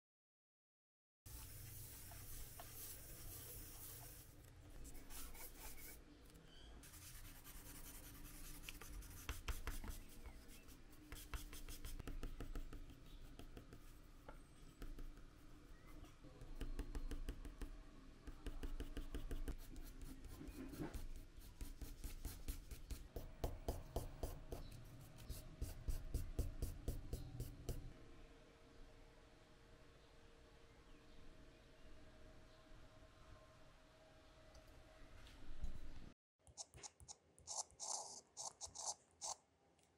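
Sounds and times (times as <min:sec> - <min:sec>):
pencil scratching on cardboard: 0:01.4 - 0:06.0, 0:06.8 - 0:17.2, 0:18.4 - 0:27.5, 0:36.5 - 0:39.4.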